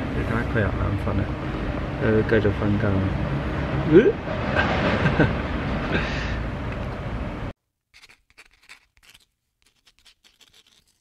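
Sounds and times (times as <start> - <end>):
loud rushing noise: 3.1 - 7.5
faint short scratching strokes: 7.9 - 11.0.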